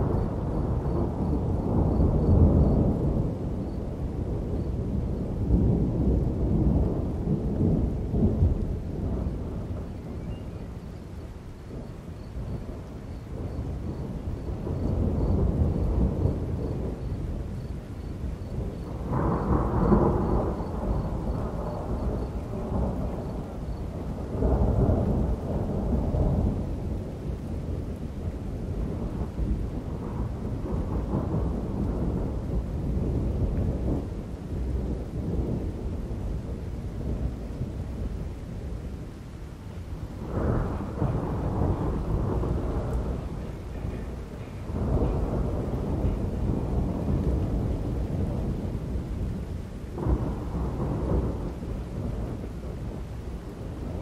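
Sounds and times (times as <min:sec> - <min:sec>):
thunder rolling: 0:00.0 - 0:39.1, 0:39.8 - 0:54.0
steady rain: 0:00.0 - 0:54.0.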